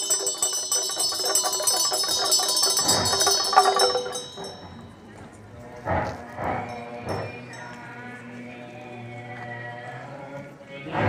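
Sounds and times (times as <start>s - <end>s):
small bells jingling: 0.0s - 5.5s, 6.5s - 8.3s.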